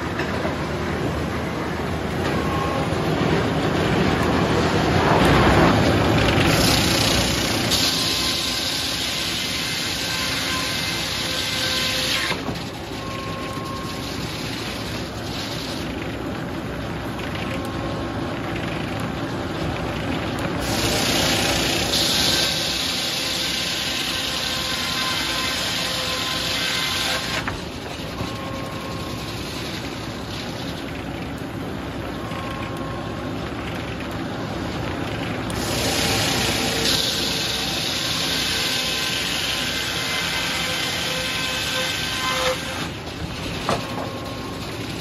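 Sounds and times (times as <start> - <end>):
saw ripping through wood: 5.2 - 12.7, 20.6 - 27.7, 35.5 - 43.9.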